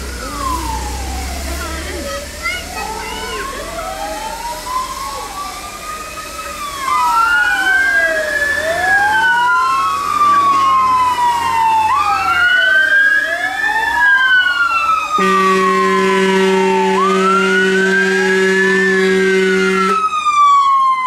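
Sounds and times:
fire engine wail sirens: 0.0s - 21.0s.

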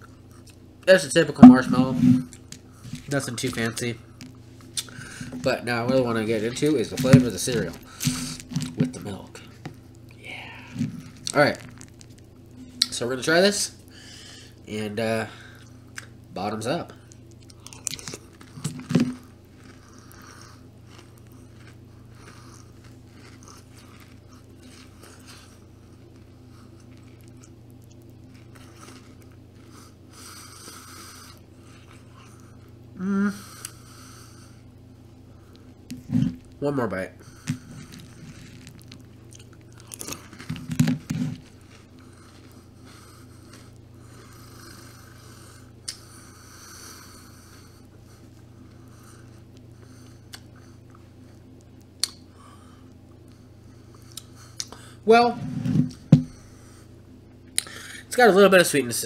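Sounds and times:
low hum: 0.0s - 58.1s
chewing cereal with mouth closed: 10.8s - 12.9s, 17.0s - 32.8s, 37.2s - 46.1s
person humming: 33.0s - 33.5s.

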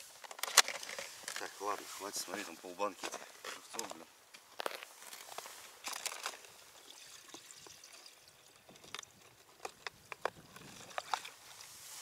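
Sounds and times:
water trickling and sloshing: 5.8s - 12.0s.

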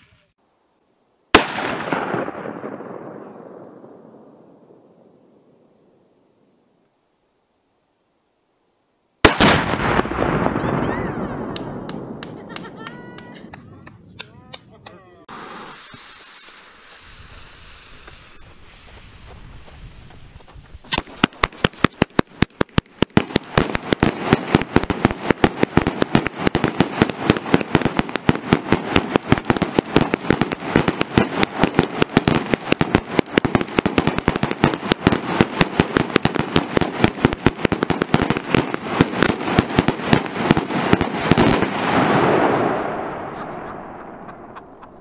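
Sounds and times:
firework rapid bangs: 1.3s - 2.9s, 9.2s - 10.9s, 15.3s - 45.0s
fuse hissing: 15.3s - 20.2s.

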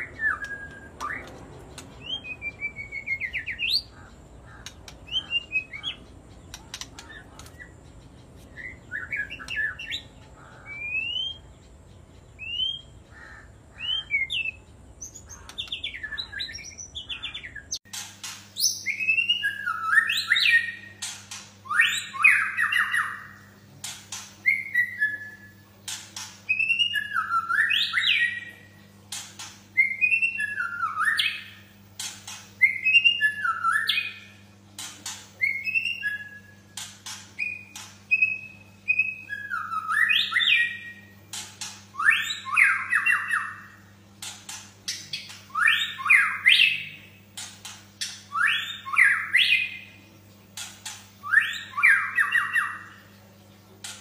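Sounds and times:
birds singing whistled phrases: 0.0s - 28.8s, 29.7s - 31.8s, 32.5s - 43.9s, 44.9s - 50.0s, 50.6s - 53.1s
faint low hum: 0.0s - 54.0s
sharp clicks: 0.3s - 3.1s, 4.6s - 8.7s.

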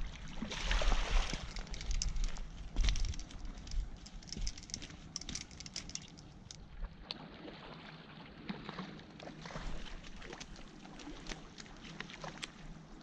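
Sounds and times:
small clicks and rustles: 1.2s - 6.7s, 10.2s - 12.7s.

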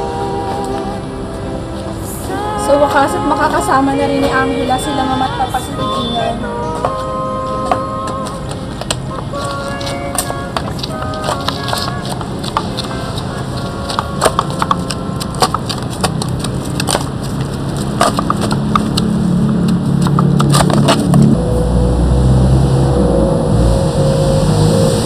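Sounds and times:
steady low drone: 0.0s - 25.0s
low rumble: 19.0s - 25.0s.

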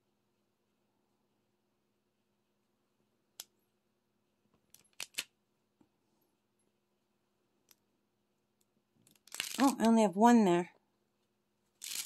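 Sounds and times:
small plastic clicks: 4.6s - 5.3s.

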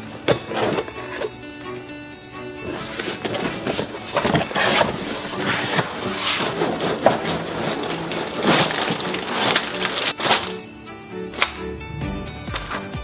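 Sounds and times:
cardboard box rustling and scraping: 2.7s - 10.2s.

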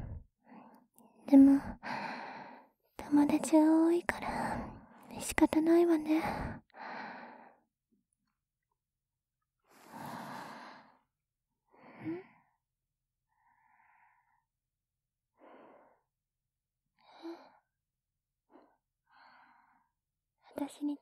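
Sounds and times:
woman breathing and sighing: 0.0s - 2.8s, 4.2s - 5.1s, 6.2s - 7.7s, 9.6s - 12.6s, 13.3s - 14.5s, 15.3s - 16.1s, 17.0s - 17.7s, 18.5s - 20.0s.

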